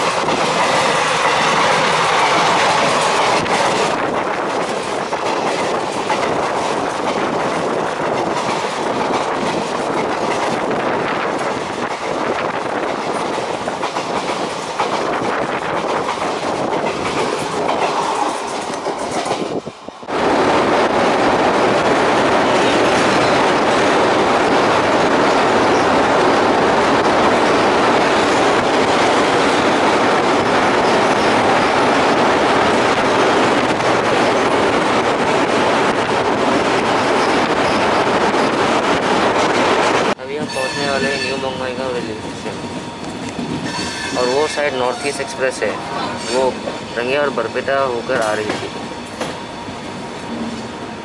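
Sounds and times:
train wheels clattering: 0.0 - 19.7, 45.8 - 50.8
passing train: 0.0 - 51.0
train crossing steel bridge: 0.0 - 51.0.

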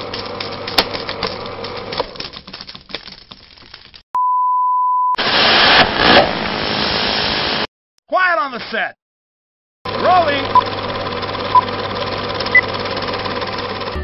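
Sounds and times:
hissing static: 5.2 - 7.7.

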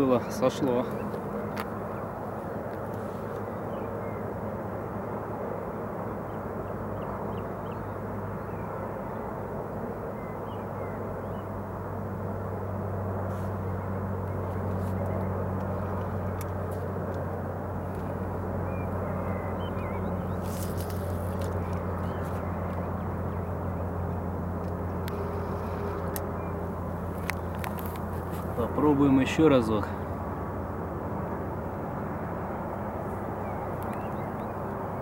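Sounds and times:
low motor hum: 0.0 - 35.0
faint bird chirps: 18.6 - 23.9.

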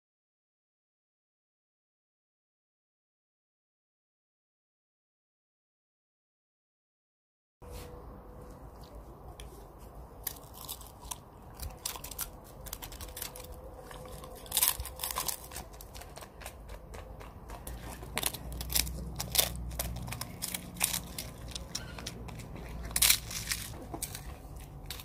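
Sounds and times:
dog crunching a wafer cone: 8.2 - 25.0.

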